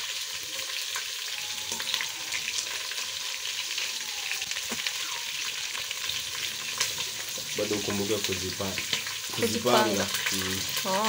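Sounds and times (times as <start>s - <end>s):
chicken frying in hot oil: 0.0s - 11.0s.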